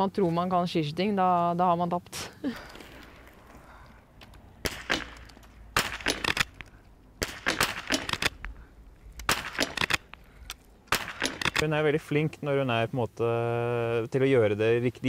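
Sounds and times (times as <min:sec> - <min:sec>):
rifle shots and clicks: 0:04.2 - 0:11.7.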